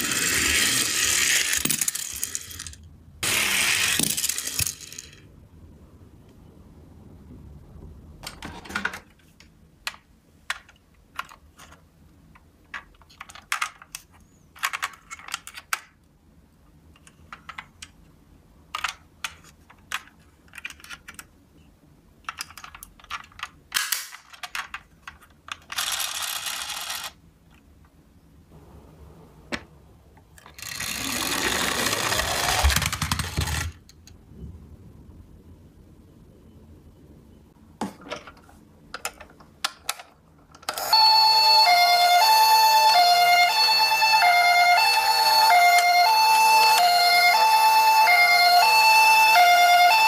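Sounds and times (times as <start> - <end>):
toy car motor whirring: 0.0 - 5.1, 25.7 - 27.2, 30.5 - 33.8
toy van clicks and knocks: 8.2 - 16.1, 16.9 - 21.4, 22.1 - 27.9, 30.4 - 34.2, 37.9 - 41.0.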